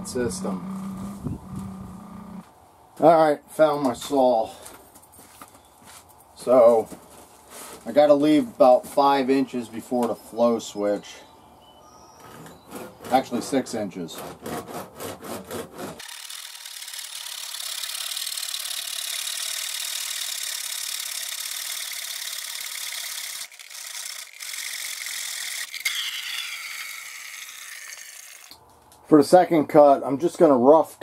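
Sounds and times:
hand saw cutting plastic pipe: 12.2s - 16.8s.

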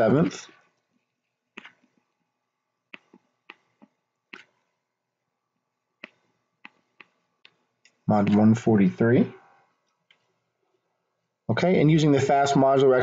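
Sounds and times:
stylus tapping on tablet: 2.9s - 4.7s, 6.0s - 8.6s.

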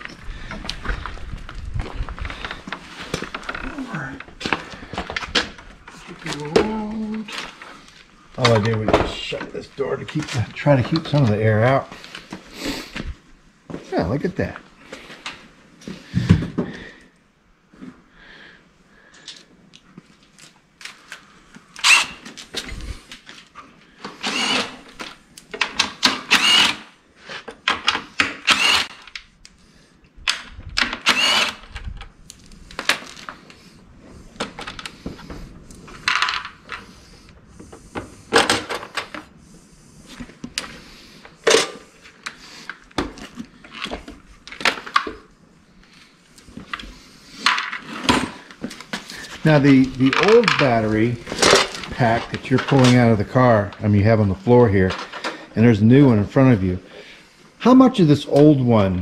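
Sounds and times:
cordless drill driving screws: 21.8s - 22.3s, 24.1s - 25.0s, 26.0s - 26.9s, 28.2s - 29.1s, 30.9s - 31.7s
plastic and metal parts rattling: 49.8s - 53.0s.

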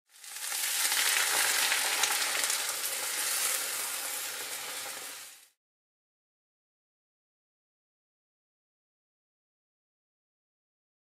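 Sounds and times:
egg sizzling in hot oil: 0.1s - 5.6s.

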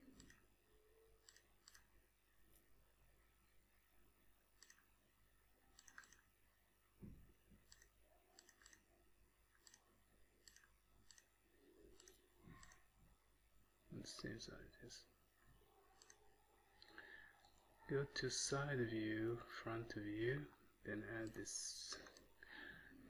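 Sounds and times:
computer mouse clicks: 0.0s - 0.4s, 1.2s - 1.9s, 4.6s - 4.9s, 5.7s - 6.3s, 7.6s - 8.9s, 9.6s - 9.8s, 10.4s - 11.3s, 11.9s - 12.9s, 16.0s - 16.2s.

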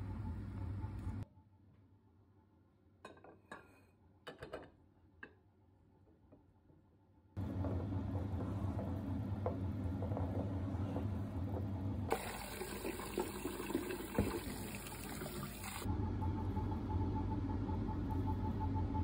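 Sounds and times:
low hum: 0.0s - 1.2s, 14.6s - 19.0s
tap water pouring into a pot: 12.1s - 15.9s
water boiling in a pot: 12.1s - 15.9s.

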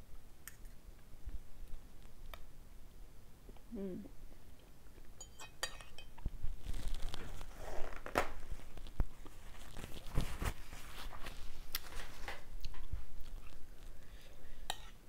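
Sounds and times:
paper tissue rustling and tearing: 6.6s - 12.4s.

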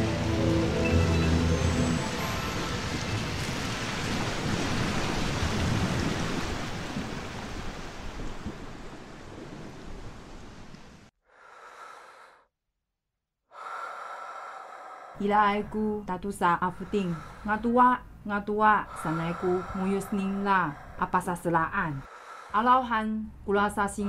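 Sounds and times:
rushing water: 0.0s - 11.1s.

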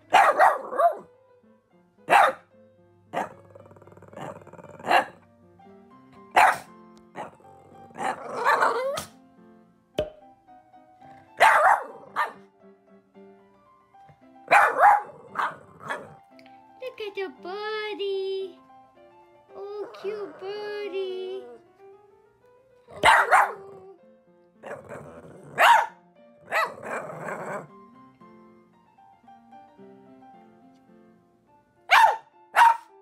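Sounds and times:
dog barking: 0.0s - 1.1s, 2.1s - 2.5s, 3.1s - 3.4s, 4.2s - 5.2s, 6.3s - 9.1s, 11.4s - 12.5s, 14.5s - 16.2s, 22.9s - 23.8s, 24.6s - 27.7s, 31.9s - 33.0s
background music: 0.0s - 33.0s.

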